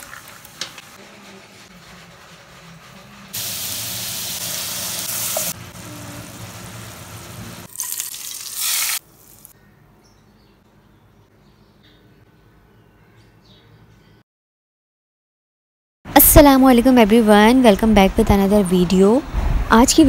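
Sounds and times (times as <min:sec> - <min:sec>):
food sizzling in a pot: 0:03.3 - 0:09.6.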